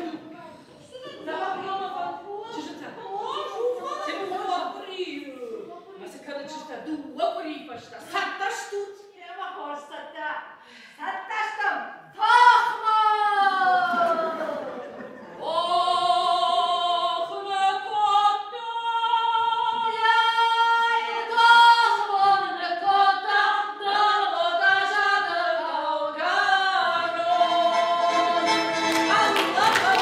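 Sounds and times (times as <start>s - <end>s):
women singing together: 12.2s - 30.0s.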